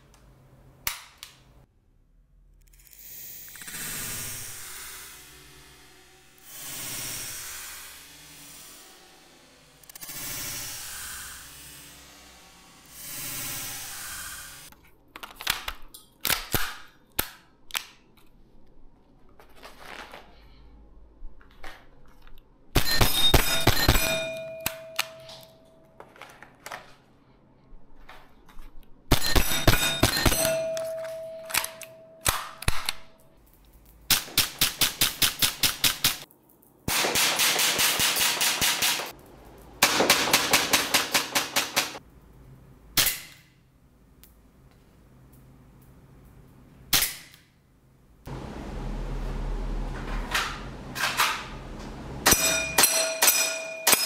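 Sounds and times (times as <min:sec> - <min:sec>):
steel target plate ringing: 0:22.8 - 0:25.6, 0:29.2 - 0:32.5, 0:52.2 - 0:54.0
airsoft pistol rapid shots: 0:34.1 - 0:36.2, 0:36.9 - 0:39.1, 0:39.8 - 0:42.0.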